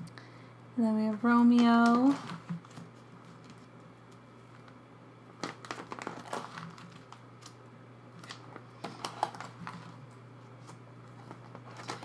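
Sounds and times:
plastic binder pages crinkling: 1.5 - 4.8, 5.4 - 7.6, 8.2 - 12.0.

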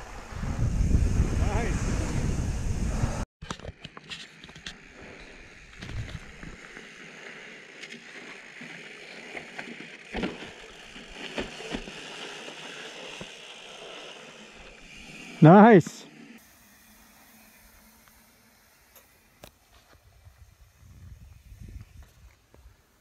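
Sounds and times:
bike tyres hissing over dirt: 0.0 - 3.3, 4.2 - 23.0
bike knocking on rock: 9.5 - 12.0.

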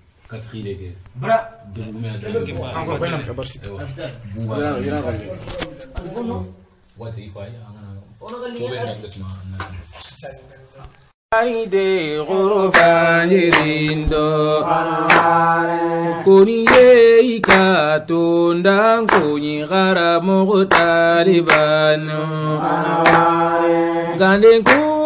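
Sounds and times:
person singing ornamented chant: 11.3 - 25.0.

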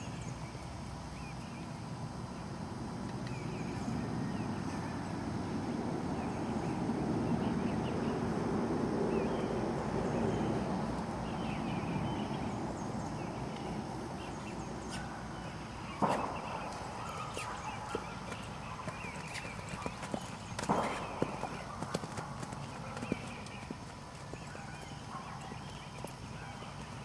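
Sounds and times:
small birds chirping: 9.0 - 27.0
sharp knock: 16.0 - 16.9, 20.6 - 21.6.

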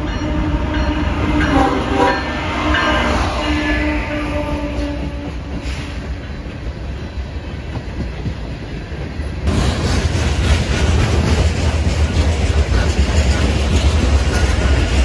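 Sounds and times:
freight train rumbling past: 0.0 - 15.0
wheels clacking over rail joints: 7.4 - 15.0.

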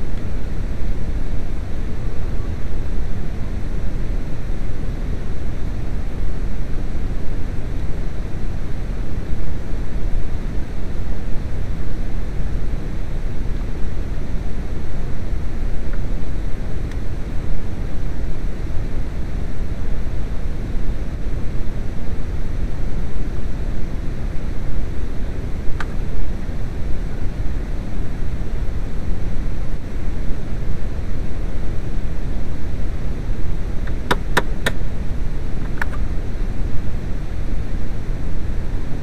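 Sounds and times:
sharp taps: 34.1 - 34.8.

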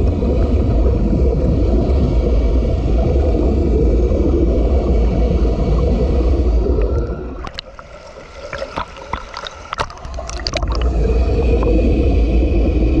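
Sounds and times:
muffled underwater water rumble: 0.0 - 13.0
bubbles popping: 6.7 - 11.8
sharp water splashes: 7.4 - 11.0.

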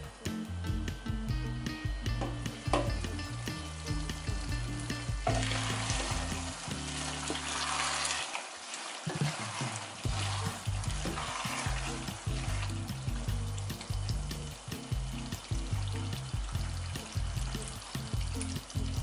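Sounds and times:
soft background music: 0.0 - 8.3, 9.1 - 19.0
chicken sizzling and bubbling in pot: 0.0 - 19.0
wooden spatula stirring: 5.3 - 14.2.

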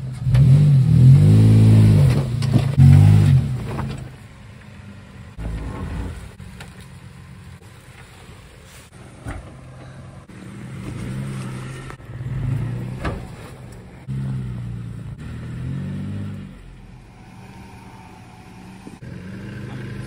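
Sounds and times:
off-road vehicle engine revving: 0.0 - 4.2, 9.5 - 20.0.

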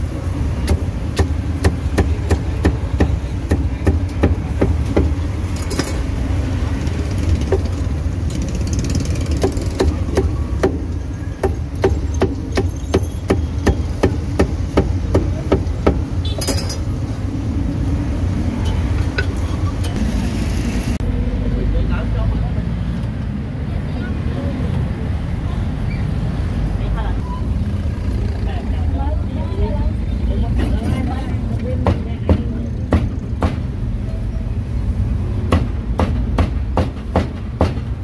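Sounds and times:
road traffic rumble: 0.0 - 38.0
cleaver chopping meat on wood: 0.6 - 5.1, 11.4 - 16.0, 35.5 - 37.9.

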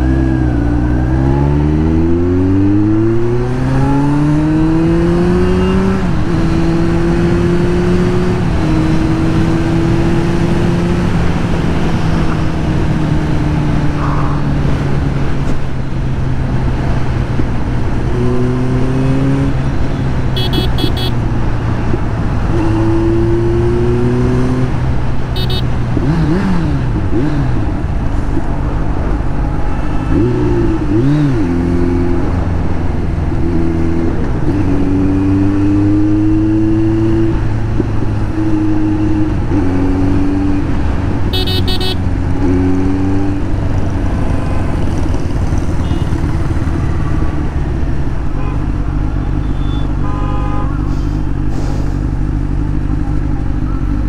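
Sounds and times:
motorcycle engine revving: 0.0 - 27.8, 30.0 - 51.0
vehicle horn toots: 20.4 - 21.2, 25.4 - 25.7, 41.3 - 42.0, 49.4 - 50.9.

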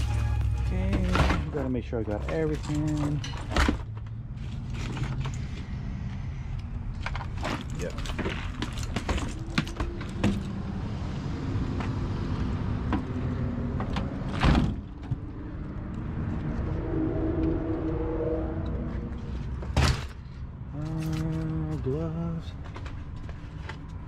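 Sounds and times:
hand tools clinking and rattling: 0.9 - 3.8, 7.0 - 10.5
van door banging shut: 14.3 - 14.9.

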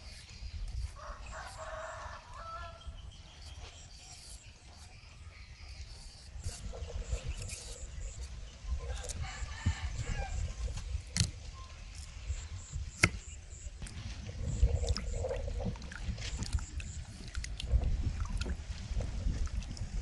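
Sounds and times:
water sloshing and splashing: 8.3 - 20.0.

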